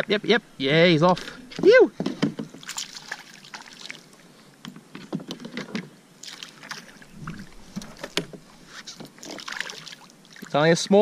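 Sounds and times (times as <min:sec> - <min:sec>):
water splashes: 0:02.5 - 0:04.3, 0:06.2 - 0:11.0.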